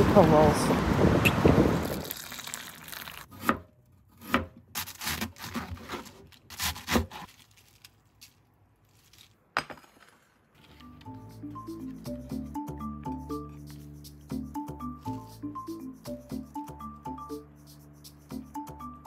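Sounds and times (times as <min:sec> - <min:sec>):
background music: 0:10.7 - 0:19.0.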